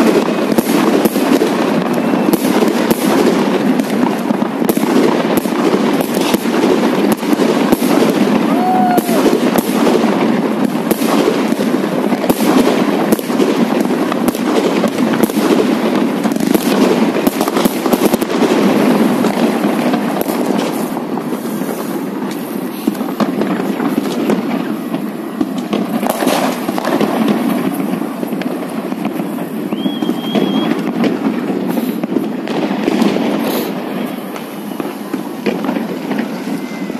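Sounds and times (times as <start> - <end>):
fireworks crackling and popping: 0.0 - 36.9.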